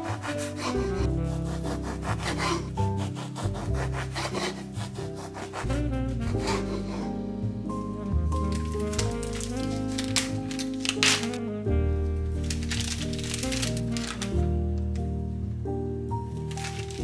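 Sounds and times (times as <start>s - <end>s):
bread knife sawing through bread: 0.0s - 7.1s
background music: 0.0s - 17.0s.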